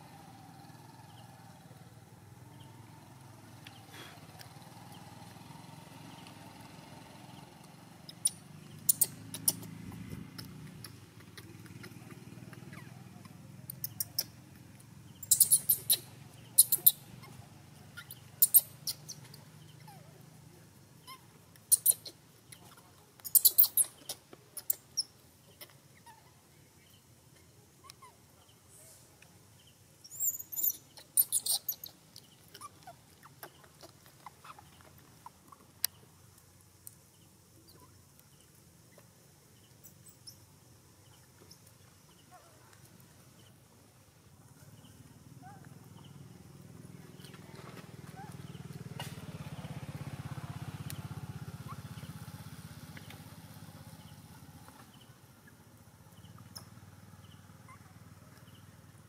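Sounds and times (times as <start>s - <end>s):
baby monkey squeaking: 8.1s - 14.4s, 15.2s - 20.0s, 21.0s - 26.2s, 30.0s - 32.0s, 32.6s - 34.8s.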